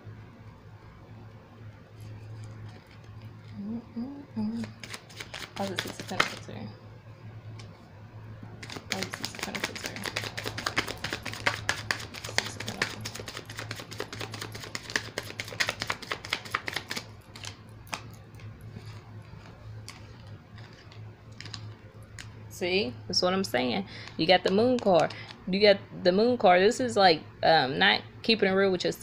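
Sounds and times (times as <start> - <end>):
steady low hum: 0.0 - 29.0
cards being shuffled: 2.0 - 3.6, 4.4 - 6.6, 8.6 - 22.3.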